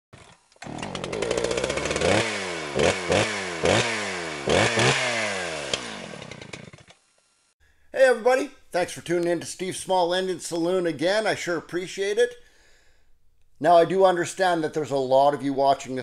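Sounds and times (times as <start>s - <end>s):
small engine starting and revving: 0.2s - 7.6s.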